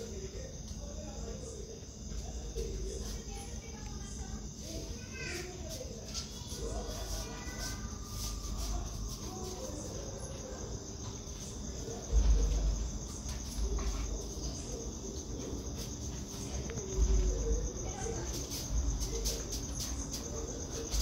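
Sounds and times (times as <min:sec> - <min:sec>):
crickets chirping: 0:00.0 - 0:21.0
low rumbling bumps: 0:11.2 - 0:15.0.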